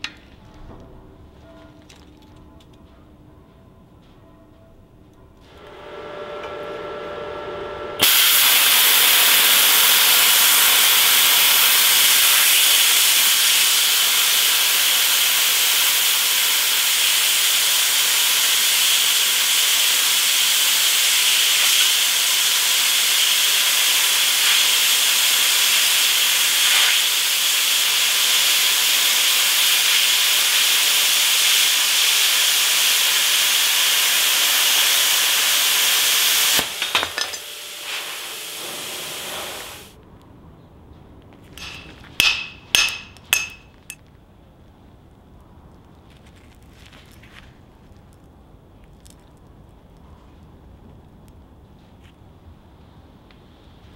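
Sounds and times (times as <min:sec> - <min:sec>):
plasma cutter hissing: 0:08.0 - 0:40.0, 0:41.6 - 0:43.7.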